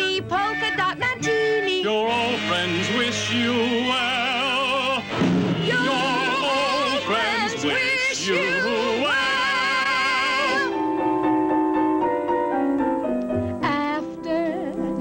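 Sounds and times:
person singing with vibrato: 0.0 - 11.2
musical backing: 0.0 - 15.0.

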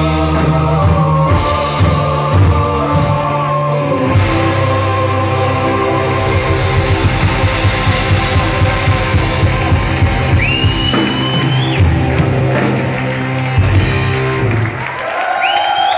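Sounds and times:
live rock band playing: 0.0 - 15.0
drum hits: 6.0 - 14.3
shrill rising whistle: 10.3 - 11.9, 15.4 - 15.9.

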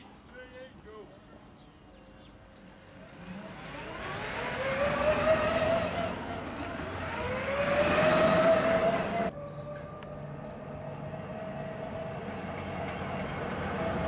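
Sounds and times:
tyres on brick paving: 0.0 - 14.0
electric motor whining: 3.3 - 9.3.

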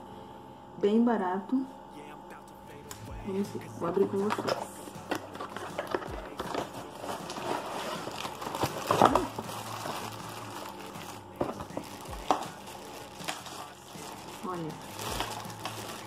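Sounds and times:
plastic bags crinkling: 4.0 - 16.0
cardboard scraping: 4.2 - 16.0.

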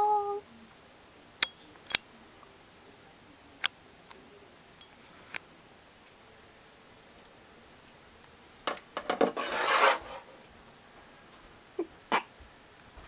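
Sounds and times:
rubbing on cat fur: 9.4 - 10.4.

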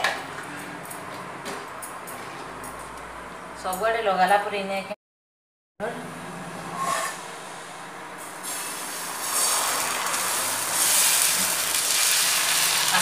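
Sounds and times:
batter sizzling on a hot pan: 8.4 - 13.0.

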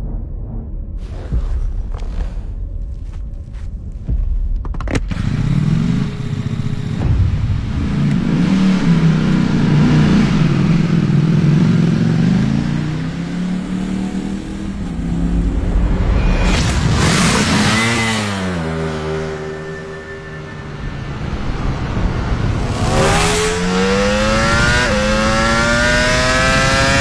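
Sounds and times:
motorcycle engine revving: 5.0 - 15.6, 16.4 - 27.0.

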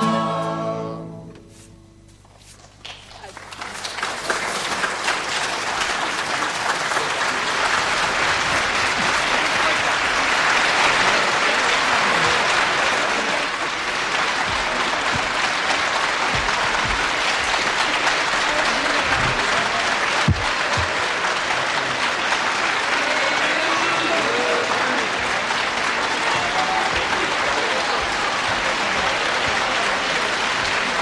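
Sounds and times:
audience applauding: 2.8 - 31.0
low thumps: 13.7 - 18.4, 19.0 - 21.0.

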